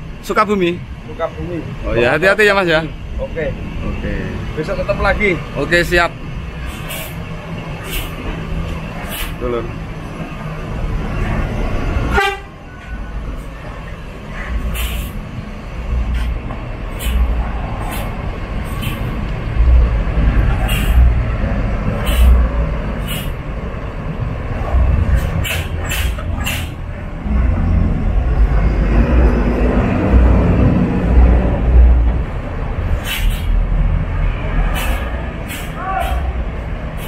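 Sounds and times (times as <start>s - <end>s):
bus diesel engine rumble: 0.0s - 37.0s
short sharp hisses: 6.6s - 7.2s, 7.8s - 8.2s, 9.0s - 9.4s, 14.7s - 15.2s, 16.9s - 18.1s, 20.6s - 21.0s, 22.0s - 22.4s, 23.0s - 23.3s, 33.0s - 33.5s, 34.7s - 36.3s.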